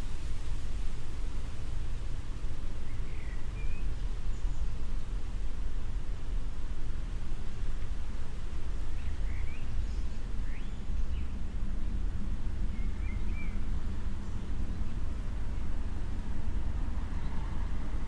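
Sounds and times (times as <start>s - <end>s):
low city rumble: 0.0s - 18.0s
bird chirping: 2.8s - 4.7s, 8.9s - 11.3s, 12.7s - 14.5s.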